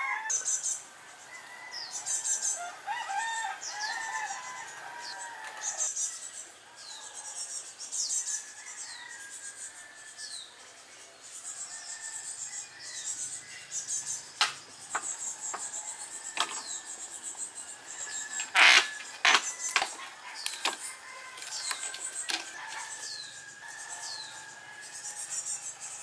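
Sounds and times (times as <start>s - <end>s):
birds chirping: 0.0s - 26.0s
bamboo wooden knocks: 16.4s - 16.6s.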